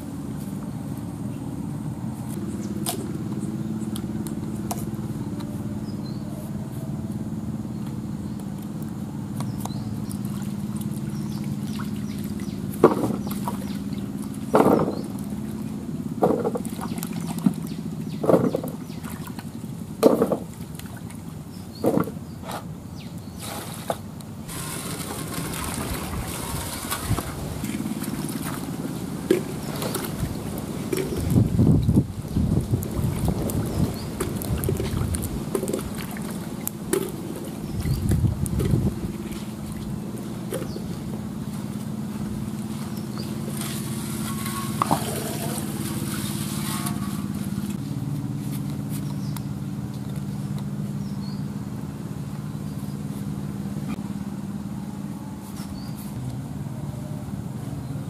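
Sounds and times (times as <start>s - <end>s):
low steady hum: 0.0s - 58.0s
swishing water scrubbing: 10.1s - 22.6s, 23.3s - 47.8s
splashes and knocks in water pot: 11.6s - 13.7s, 14.4s - 15.2s, 20.0s - 21.1s.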